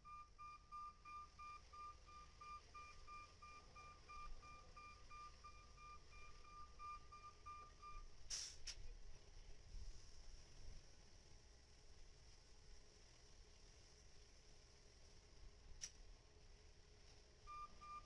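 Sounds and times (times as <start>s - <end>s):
faint reversing alarm beeping: 0.0s - 8.2s, 17.5s - 18.0s.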